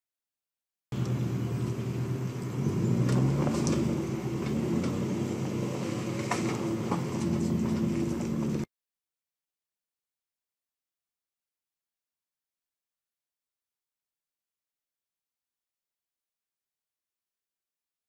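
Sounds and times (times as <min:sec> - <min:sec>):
suv engine running at low revs: 0:00.9 - 0:08.7
stones crunching under tyres: 0:01.0 - 0:08.7.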